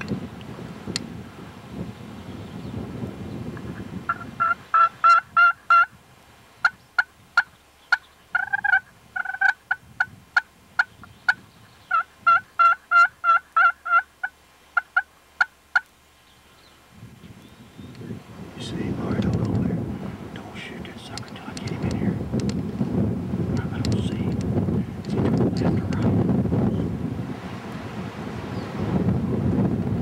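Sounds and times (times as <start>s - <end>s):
wind rumbling on microphone: 0.0s - 13.2s, 16.5s - 30.0s
turkey call yelps and clucks: 4.1s - 5.9s, 6.6s - 9.8s, 11.9s - 15.9s.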